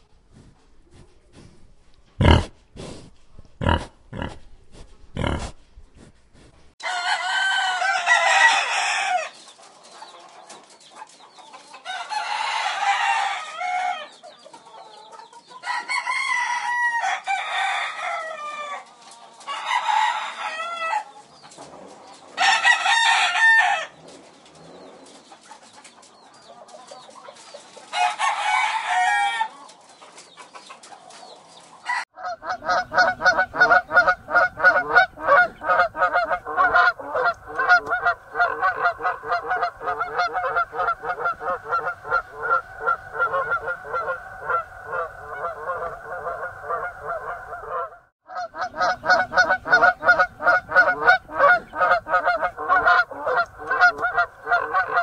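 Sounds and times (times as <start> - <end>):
rooster crowing: 6.8 - 9.3, 11.9 - 14.1, 15.6 - 18.8, 19.5 - 21.1, 22.4 - 23.9, 28.0 - 29.5, 31.9 - 55.0
geese honking: 32.2 - 55.0.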